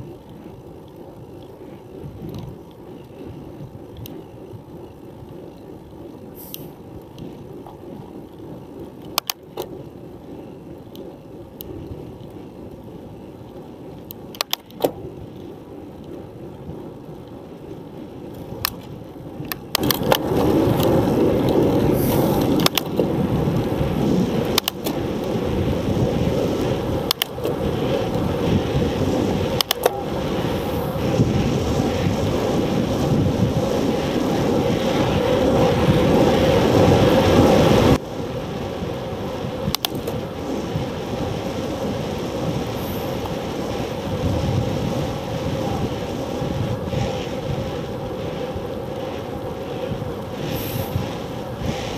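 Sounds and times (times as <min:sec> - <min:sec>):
bicycle clicks and knocks: 0:00.0 - 0:31.4, 0:32.0 - 0:51.9
bicycle tyres rumbling on asphalt: 0:00.0 - 0:51.9
wind rushing: 0:19.9 - 0:51.9.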